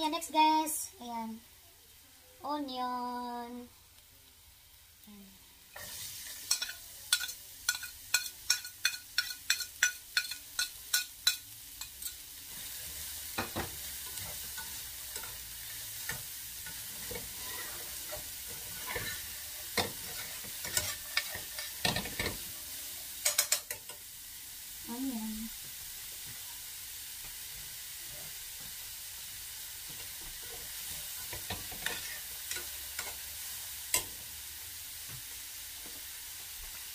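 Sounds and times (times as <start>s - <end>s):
onion sizzling in oil: 0.0s - 36.9s
metal spatula tapping and scraping pan: 6.3s - 12.2s, 13.3s - 15.4s, 16.0s - 22.4s, 23.2s - 24.0s, 29.8s - 33.2s.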